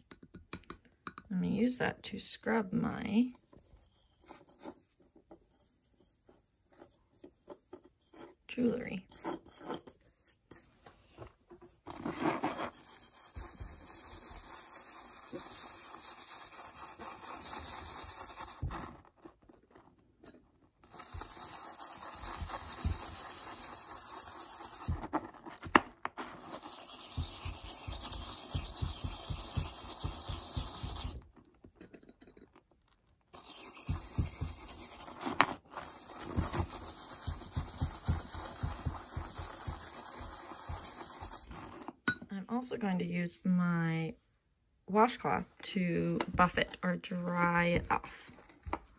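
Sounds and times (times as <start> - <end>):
toothbrush scrubbing metal: 3.6 - 10.8, 11.6 - 18.8, 20.8 - 25.1, 26.2 - 31.3, 33.4 - 41.9.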